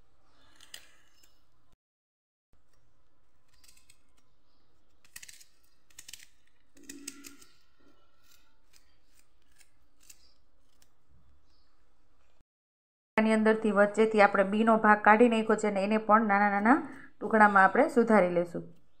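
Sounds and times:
knife cutting through onion: 0:05.0 - 0:11.0.

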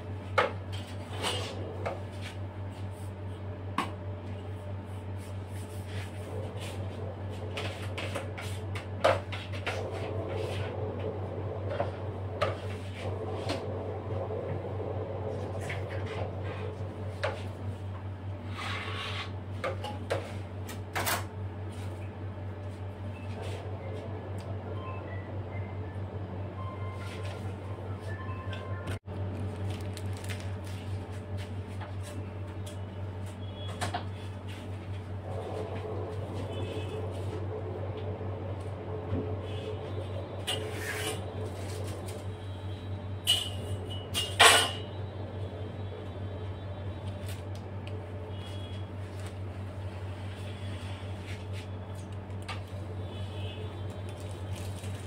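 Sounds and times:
steady low hum: 0:00.0 - 0:55.0
rustling and scraping handling noises: 0:00.6 - 0:03.5, 0:04.3 - 0:10.8, 0:26.9 - 0:28.2, 0:28.9 - 0:37.5, 0:39.5 - 0:42.4, 0:48.4 - 0:52.8, 0:53.8 - 0:55.0.

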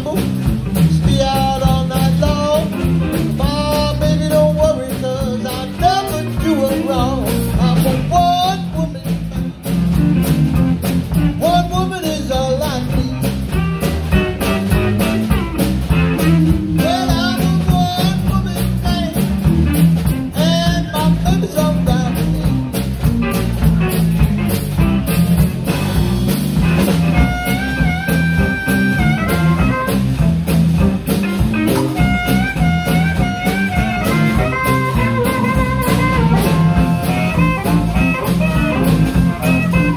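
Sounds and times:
man singing: 0:00.0 - 0:09.4, 0:11.3 - 0:13.6, 0:16.4 - 0:19.5, 0:20.3 - 0:22.7
electric blues band playing: 0:00.0 - 0:39.9
harmonica held notes: 0:27.0 - 0:30.3, 0:31.6 - 0:39.9.

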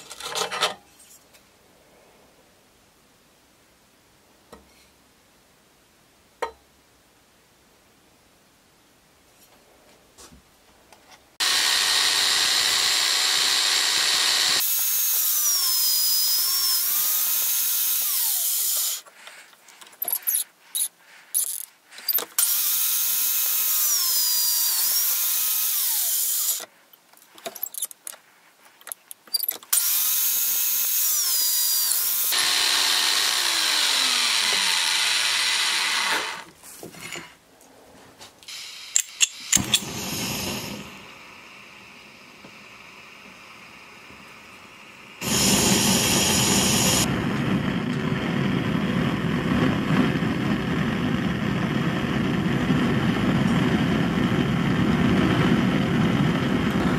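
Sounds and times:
drill press whining: 0:11.4 - 0:19.0, 0:29.8 - 0:36.5, 0:38.5 - 0:48.6.

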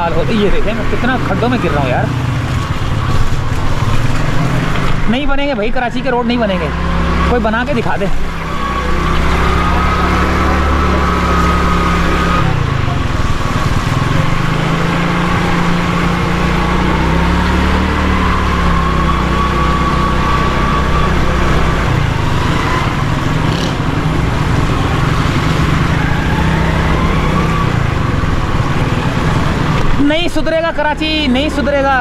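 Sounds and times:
motorcycle engine running: 0:00.0 - 0:32.0
road and wind noise: 0:00.0 - 0:32.0.

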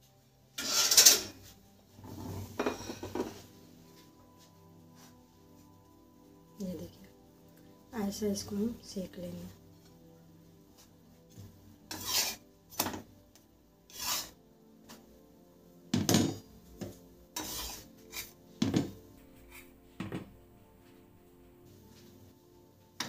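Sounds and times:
spatula scraping on griddle: 0:00.6 - 0:03.4, 0:10.8 - 0:13.0, 0:13.9 - 0:14.4, 0:17.3 - 0:19.7.

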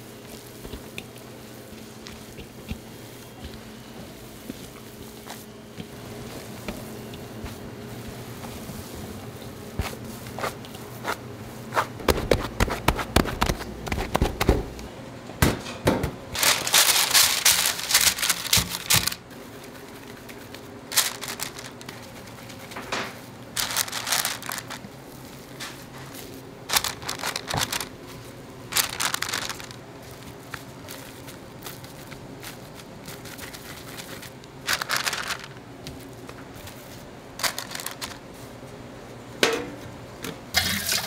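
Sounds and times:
kitchen knocks and clatter: 0:15.4 - 0:16.2, 0:39.4 - 0:39.8
packaging crinkling: 0:16.4 - 0:38.5.

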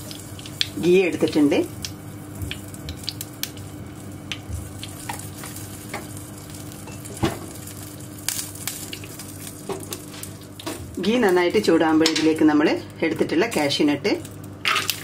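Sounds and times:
small crackles and pops: 0:00.0 - 0:00.8, 0:01.7 - 0:06.8, 0:07.5 - 0:12.4
butter sizzling in a frying pan: 0:00.0 - 0:12.8.

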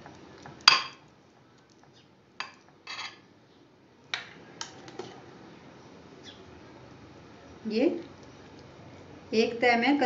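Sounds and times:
spoon scraping dish: 0:02.5 - 0:03.2.

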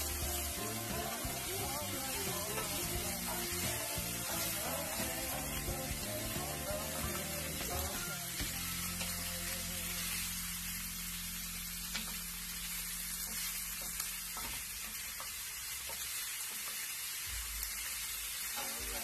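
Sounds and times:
meat and onion sizzling in skillet: 0:00.0 - 0:19.0.

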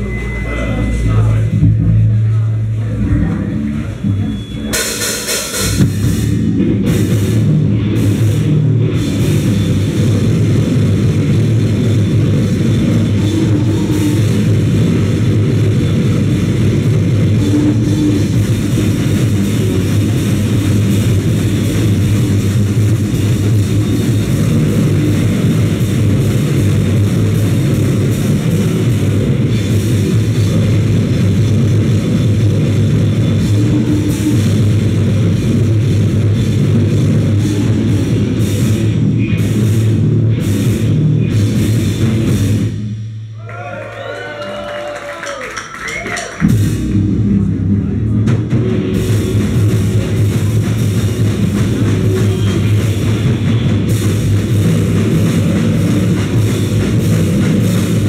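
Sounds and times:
cymbal hits: 0:00.0 - 0:09.8
distorted guitar and bass noise: 0:00.0 - 0:43.4, 0:45.6 - 0:58.0
drums pounding: 0:00.0 - 0:58.0.

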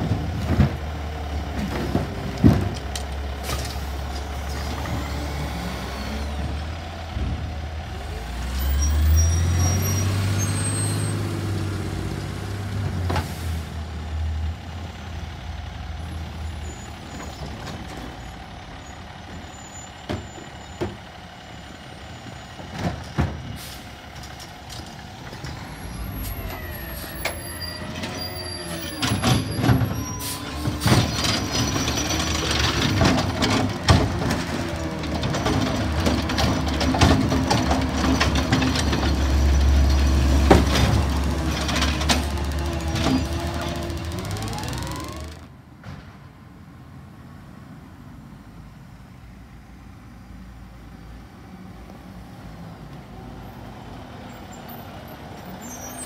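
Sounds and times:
diesel truck engine revving: 0:03.3 - 0:17.2, 0:25.2 - 0:45.5.

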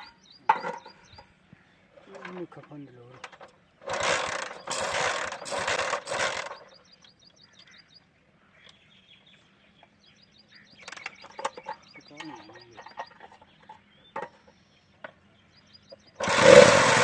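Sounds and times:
motorcycle engine kick-start cranking: 0:02.2 - 0:07.1, 0:16.0 - 0:17.0.

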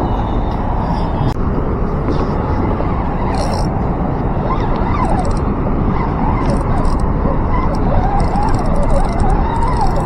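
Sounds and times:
wind buffeting microphone: 0:00.0 - 0:10.0.

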